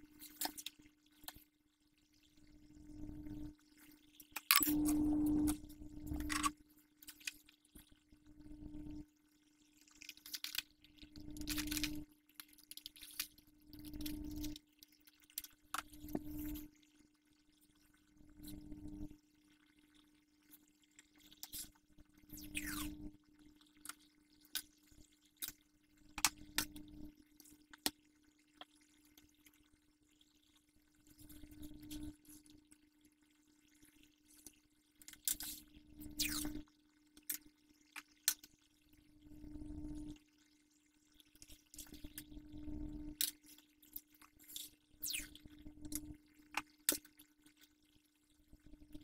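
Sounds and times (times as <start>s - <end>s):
low hum: 4.5s - 6.5s.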